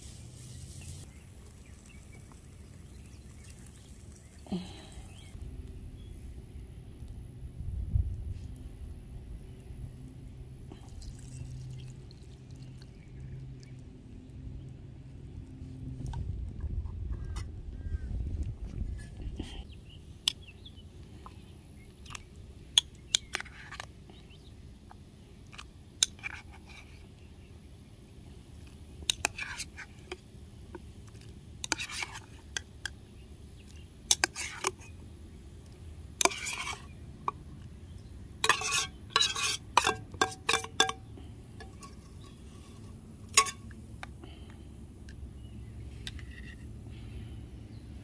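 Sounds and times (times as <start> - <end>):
metal spoon scraping tin can: 36.2 - 36.9, 38.4 - 41.0.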